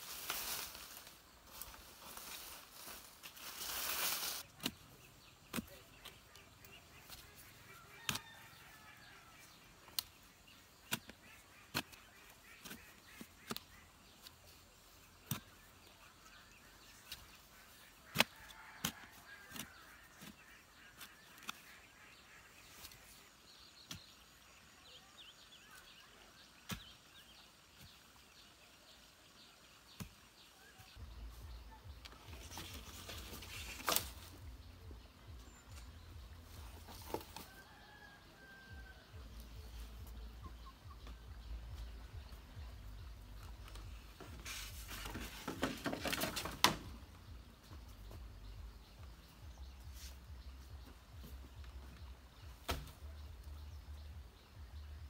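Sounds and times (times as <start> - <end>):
hoe scraping and chopping dirt: 3.5 - 14.4, 15.1 - 24.2.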